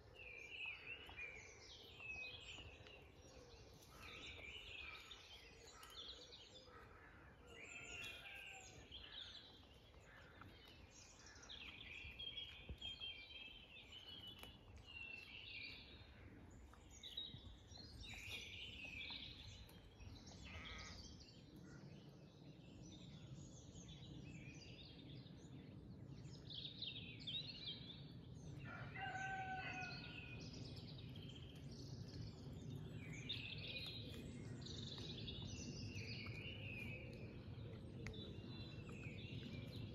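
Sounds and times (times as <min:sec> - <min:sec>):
faint songbirds singing: 0:00.0 - 0:39.9
low background rumble: 0:29.9 - 0:39.9.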